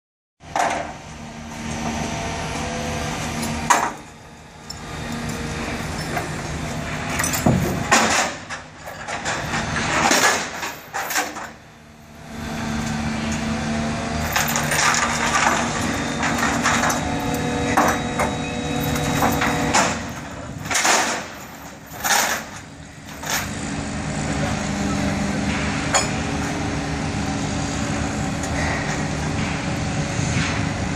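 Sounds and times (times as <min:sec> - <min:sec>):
crane engine hum: 0:00.4 - 0:30.9
knocks and clattering: 0:03.4 - 0:04.1, 0:04.7 - 0:11.6, 0:14.2 - 0:23.6.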